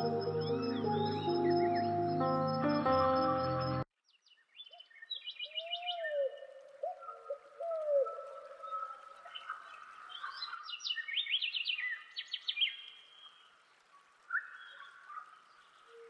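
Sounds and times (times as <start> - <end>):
birds chirping: 0.0 - 5.7.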